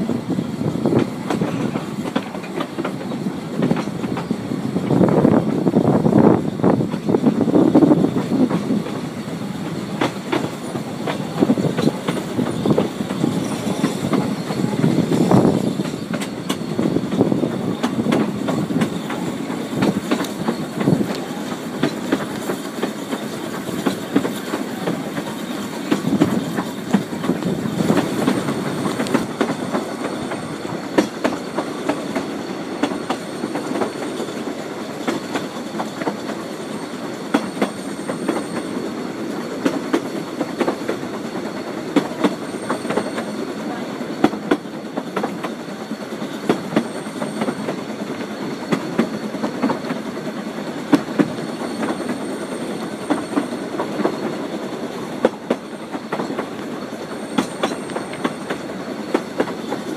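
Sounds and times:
railway carriage rumbling: 0.0s - 59.9s
wheels clicking over rail joints: 0.9s - 5.6s, 6.8s - 59.9s.

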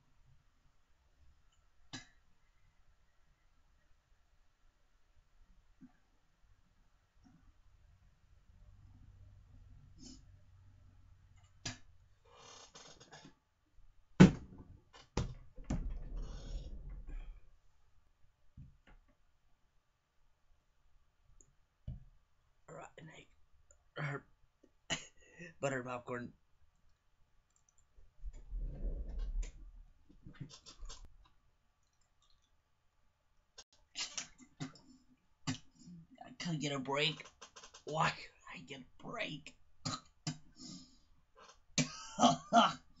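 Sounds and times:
low rumbling handling noise: 15.4s - 17.6s, 28.2s - 31.1s.

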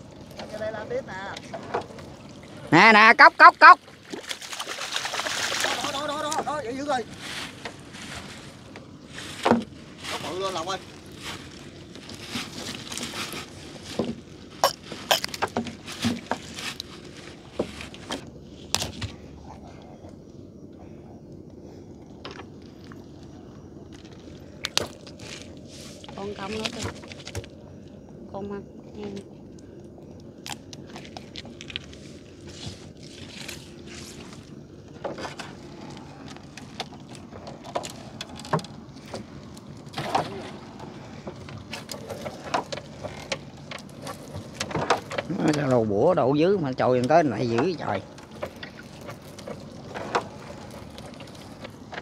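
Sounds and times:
water splashing: 0.0s - 7.1s, 30.6s - 52.0s
net knocking and clattering on boat: 0.3s - 2.2s, 3.1s - 19.2s, 32.4s - 52.0s
clicks and knocks of net hauling: 39.9s - 45.7s.

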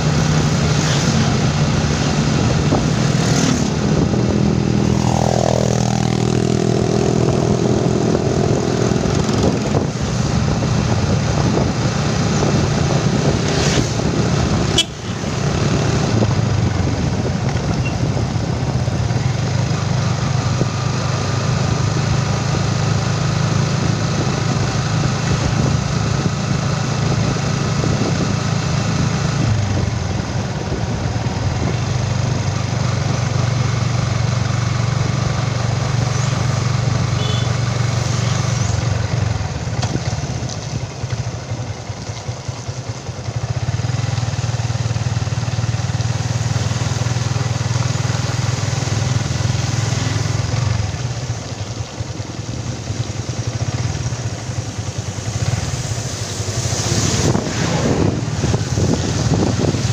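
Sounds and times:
motorcycle engine running: 0.0s - 59.9s
rushing noise: 52.8s - 59.9s.

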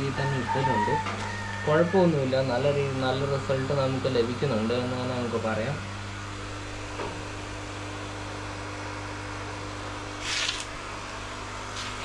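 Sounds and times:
low electrical hum: 0.0s - 12.0s.

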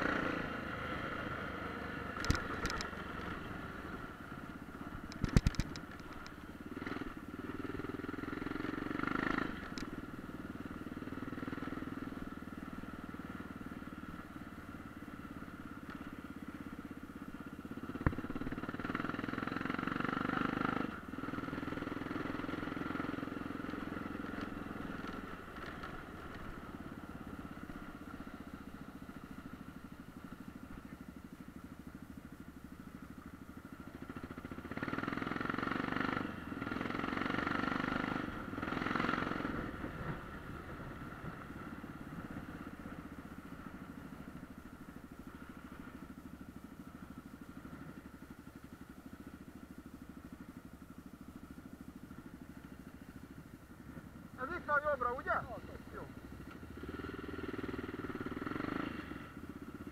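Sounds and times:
sharp click: 2.2s - 2.9s, 5.0s - 6.4s
dirt bike engine revving: 6.8s - 9.8s, 54.4s - 59.3s.

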